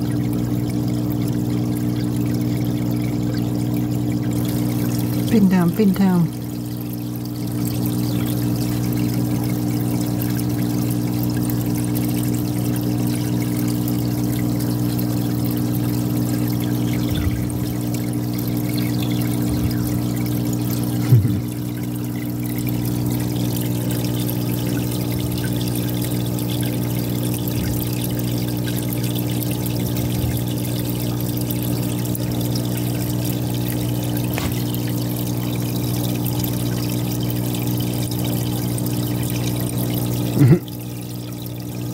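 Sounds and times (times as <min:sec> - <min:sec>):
aquarium filter pump hum: 0:00.0 - 0:41.9
water pouring and trickling: 0:00.0 - 0:41.9
short bump: 0:34.3 - 0:34.7.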